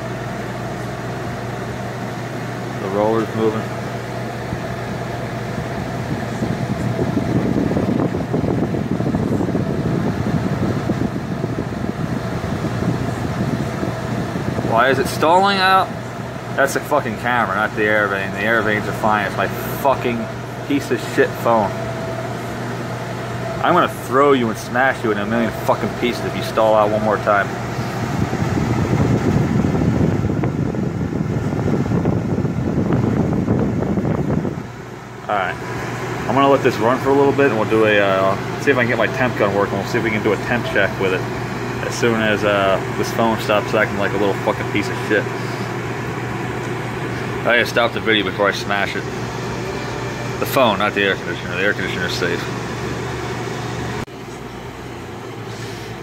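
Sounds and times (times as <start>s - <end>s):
air buffeting microphone: 0.0s - 56.0s
air conditioner humming: 0.0s - 56.0s.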